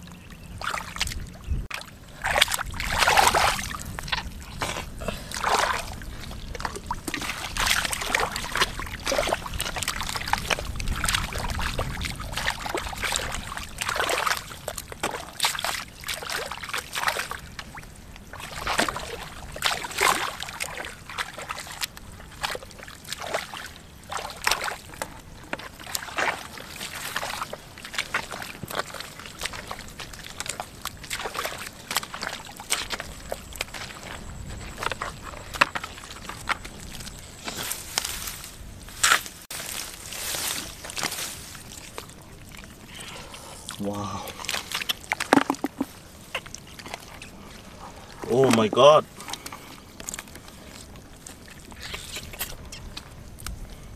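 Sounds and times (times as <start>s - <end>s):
splashing in muddy water: 0.0s - 53.9s.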